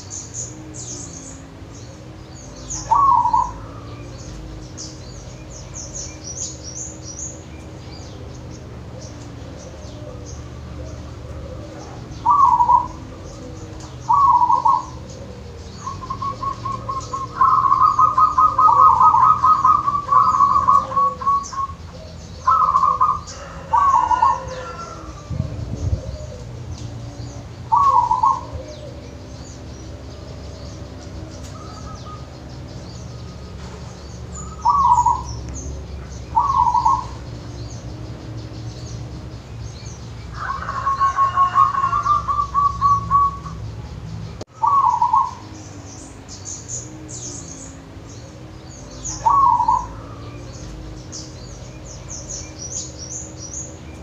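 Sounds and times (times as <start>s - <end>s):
dove cooing: 0.0s - 54.0s.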